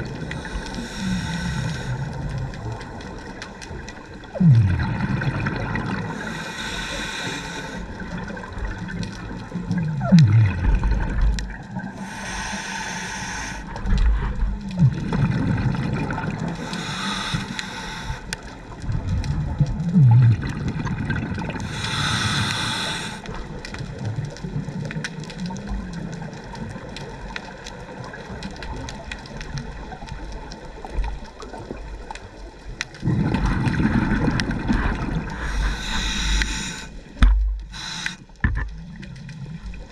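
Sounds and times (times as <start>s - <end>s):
regulator hissing inhale: 0.3s - 2.2s, 6.1s - 8.1s, 11.9s - 13.9s, 16.5s - 18.4s, 21.6s - 23.4s, 35.3s - 38.4s
loud bubbling rumble: 4.3s - 6.0s, 14.7s - 16.4s, 18.8s - 21.5s, 33.0s - 35.4s
gurgling exhaust bubbles: 4.3s - 6.4s, 8.1s - 11.8s, 14.0s - 16.6s, 18.8s - 21.8s, 33.0s - 36.2s.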